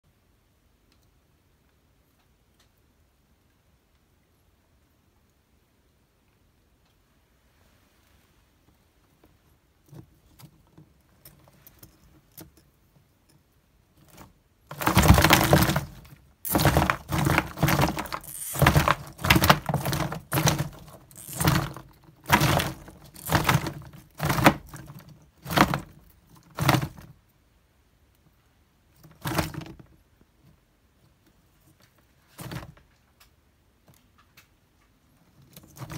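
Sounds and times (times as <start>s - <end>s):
faint scuffling: 14.1s - 24.8s
wood chips clattering against plastic tub: 14.7s - 24.7s.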